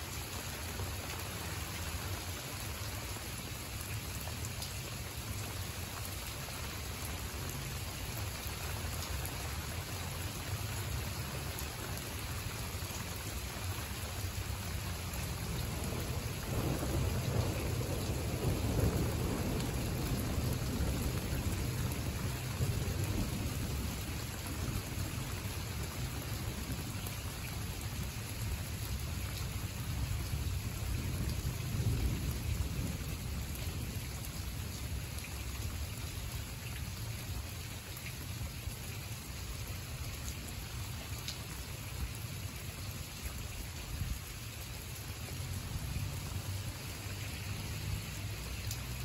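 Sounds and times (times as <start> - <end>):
rain falling on leaves: 0.0 - 49.0
thunder rumbling: 15.4 - 26.9.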